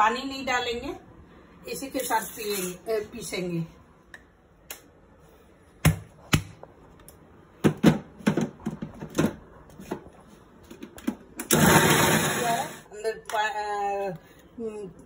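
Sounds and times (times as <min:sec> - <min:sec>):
mixer grinder motor grinding: 0:11.5 - 0:12.8.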